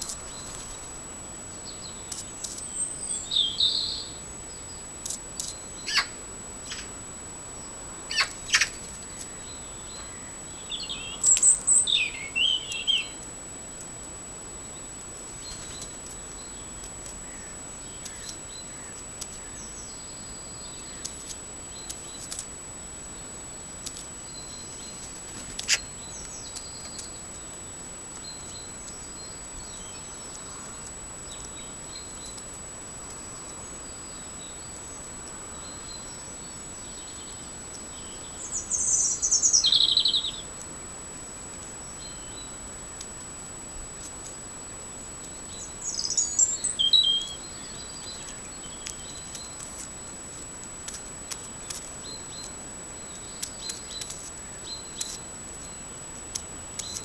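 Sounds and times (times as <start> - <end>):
steady hiss: 0.0 - 57.0
birds chirping: 1.5 - 13.3, 24.2 - 40.6, 44.4 - 50.5, 51.6 - 57.0
bird beak pecking on concrete: 53.4 - 54.4.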